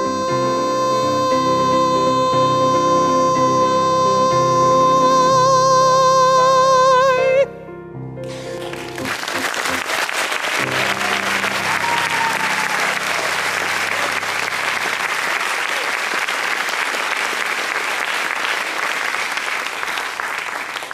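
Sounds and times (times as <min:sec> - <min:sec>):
audience applauding: 0:08.2 - 0:20.9
held musical chord: 0:10.6 - 0:15.2.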